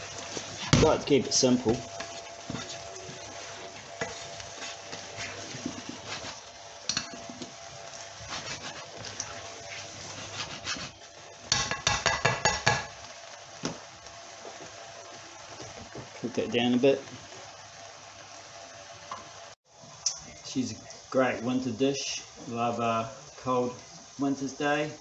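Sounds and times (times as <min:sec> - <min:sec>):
utensil scraping vegetables in pan: 0:00.0 - 0:12.9
low steady sizzle: 0:00.0 - 0:25.0.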